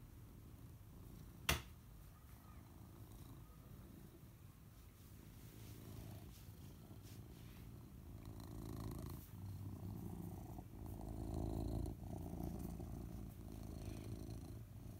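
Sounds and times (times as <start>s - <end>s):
cat purring: 5.2s - 14.9s.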